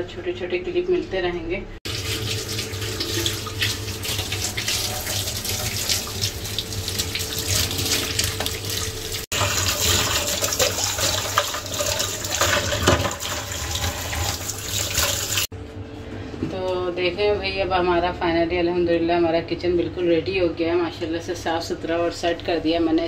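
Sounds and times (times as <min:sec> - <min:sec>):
dishes washed in soapy water: 0:01.8 - 0:15.5
tap water running into sink: 0:01.9 - 0:15.5
cup and utensils clinking on sink: 0:09.4 - 0:14.3.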